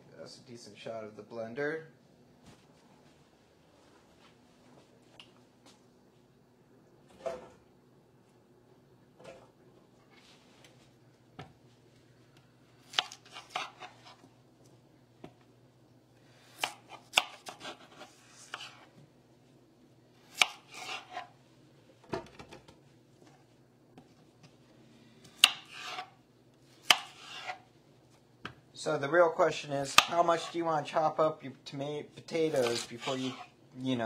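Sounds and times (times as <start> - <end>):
knife chopping potatoes: 12.8 - 14.2, 16.5 - 18.9, 20.2 - 21.3, 25.2 - 26.1, 26.8 - 27.6, 29.8 - 30.6, 32.3 - 33.5.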